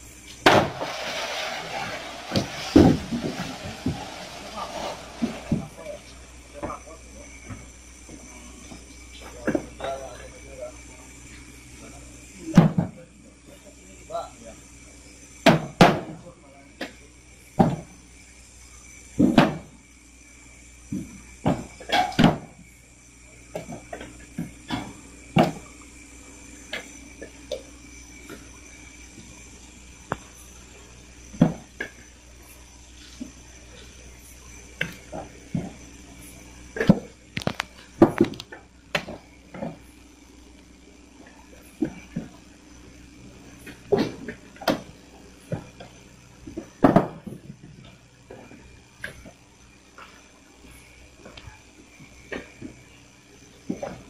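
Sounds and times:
coconuts thudding onto pile: 0.4s - 0.9s
coconuts thudding onto a pile: 0.4s - 1.0s, 21.0s - 22.6s, 46.8s - 47.5s.

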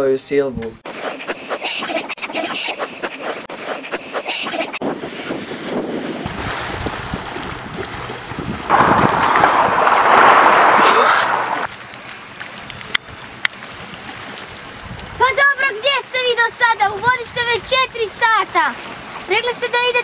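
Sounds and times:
wind buffeting microphone: 4.8s - 11.7s, 14.7s - 15.5s
seawater splashing: 6.3s - 15.1s.

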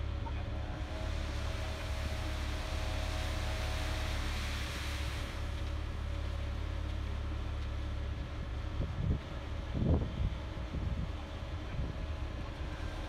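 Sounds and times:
concrete mixer truck drone: 0.0s - 13.0s
high hiss: 0.8s - 6.9s.

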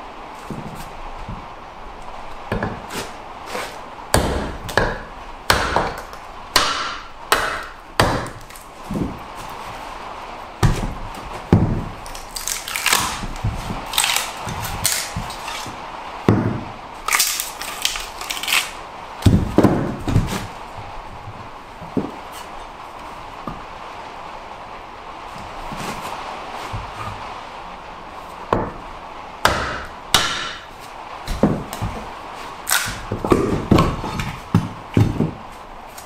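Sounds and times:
wooden mallet strikes: 4.1s - 9.2s, 29.4s - 30.6s
log cracking and tearing: 12.0s - 15.8s, 17.0s - 18.8s, 32.6s - 33.2s.

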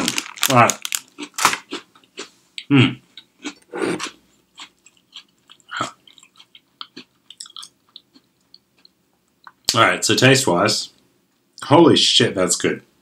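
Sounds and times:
person chewing crunchy cookie: 0.0s - 2.4s, 3.2s - 9.6s.

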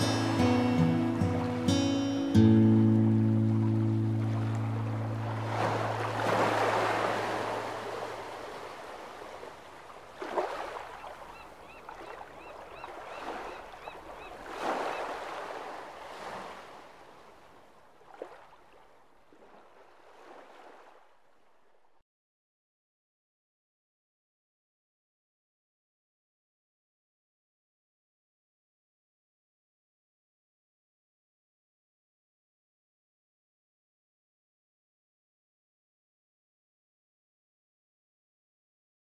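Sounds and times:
guitar music: 0.0s - 6.2s
waves washing onto shore: 3.0s - 21.0s.

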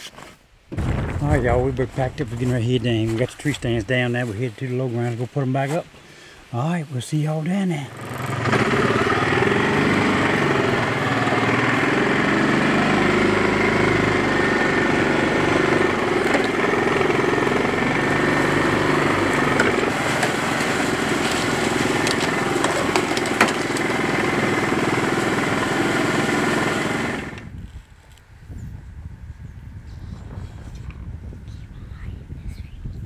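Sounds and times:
atv engine running: 7.9s - 27.8s.

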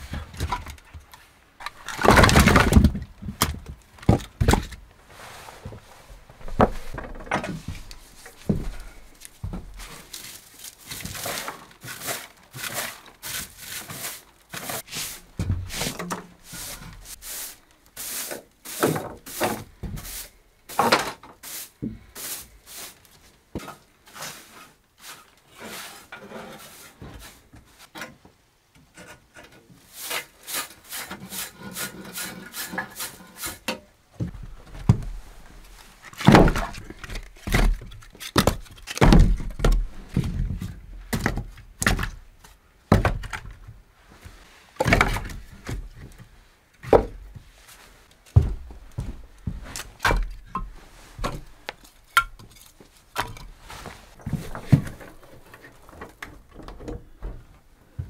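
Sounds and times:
footsteps on wooden boards: 0.0s - 4.9s, 5.6s - 12.0s, 14.5s - 17.2s, 34.2s - 58.0s
broom sweeping wooden floor: 5.0s - 27.9s, 29.8s - 34.4s, 44.0s - 45.0s, 47.4s - 52.0s, 53.5s - 55.9s
heavy wooden thuds: 15.4s - 15.8s, 48.4s - 50.4s.

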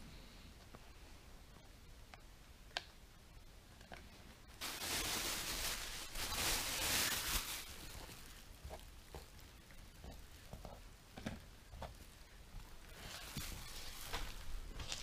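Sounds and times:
rustling: 3.8s - 15.0s.

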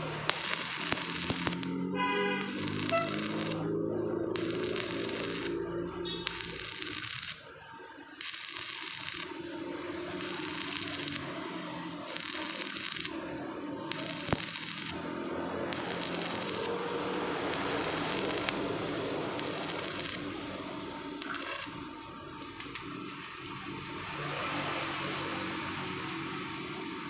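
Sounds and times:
welding arc crackling and hissing: 0.0s - 1.8s, 2.4s - 3.7s, 4.3s - 5.6s, 6.2s - 7.5s, 8.2s - 9.4s, 10.2s - 11.4s, 12.0s - 15.1s, 15.7s - 16.8s, 17.5s - 18.7s, 19.3s - 20.4s, 21.1s - 22.0s.

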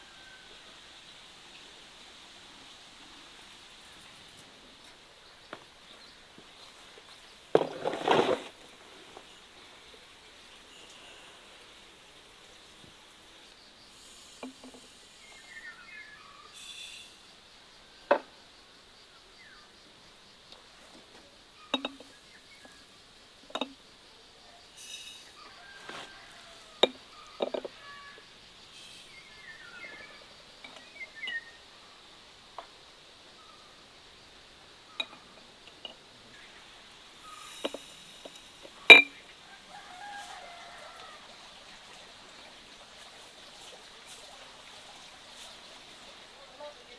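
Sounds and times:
faint insects: 0.0s - 46.9s
glass jars clattering: 21.7s - 22.2s, 23.5s - 23.8s, 26.8s - 28.0s, 35.0s - 36.0s, 37.5s - 39.2s
glass jars clinking: 21.7s - 22.2s, 23.5s - 23.8s, 26.8s - 28.0s, 37.4s - 39.2s
bird chirps: 28.8s - 31.6s.

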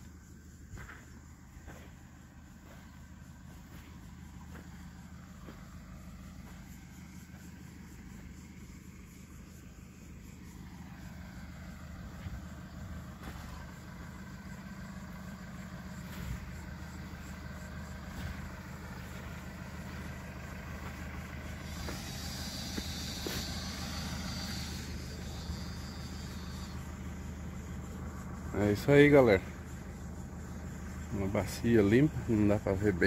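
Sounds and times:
diesel engine running: 0.0s - 33.0s
high hiss: 19.6s - 27.0s.

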